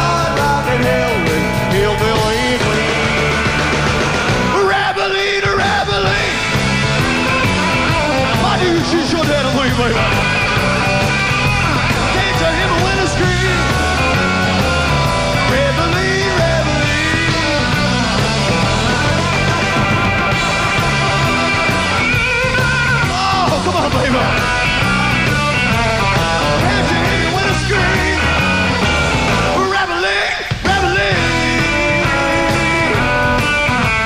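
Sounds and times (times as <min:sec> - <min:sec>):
repeating bass line: 0:00.0 - 0:04.7, 0:05.5 - 0:29.7, 0:30.6 - 0:34.0
bending melodic lines: 0:06.2 - 0:29.6.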